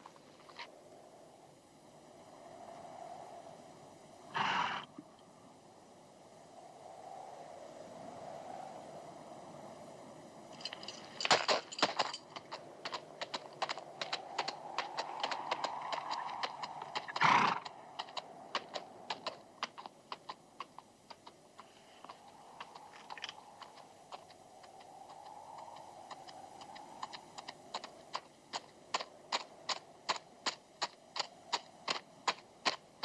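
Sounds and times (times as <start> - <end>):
horse snorting: 4.4 - 4.9, 17.0 - 17.7
horse hooves clopping on rocky ground: 10.6 - 33.0.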